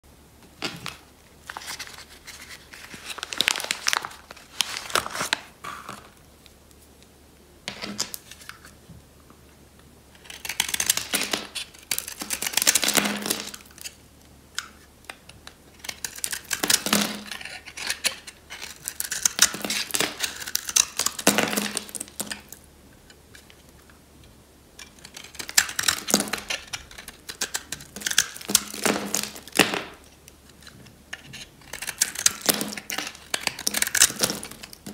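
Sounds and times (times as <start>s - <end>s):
knife scraping soap: 10.2s - 14.0s, 15.8s - 22.5s, 24.8s - 29.4s, 30.4s - 34.8s.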